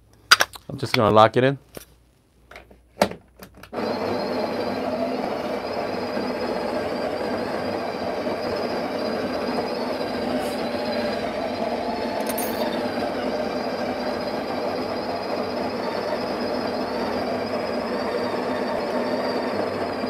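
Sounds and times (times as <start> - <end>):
coffee grinder grinding: 3.8 - 20.0.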